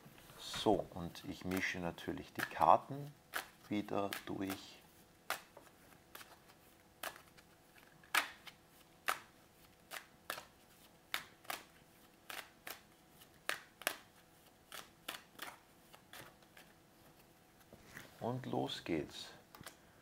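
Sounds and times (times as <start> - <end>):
cards being shuffled: 0.7 - 2.7, 3.3 - 18.1
sharp card slaps: 8.1 - 9.3.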